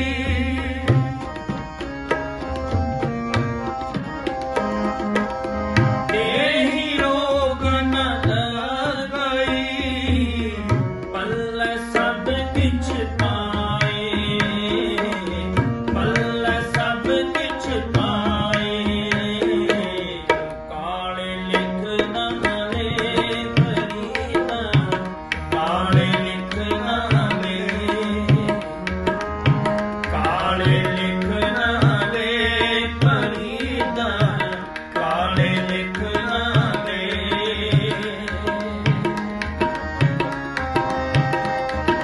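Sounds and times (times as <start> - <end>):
man singing: 0.0 - 1.6, 5.8 - 42.0
harmonium chords: 0.0 - 42.0
tabla strokes: 21.5 - 42.0.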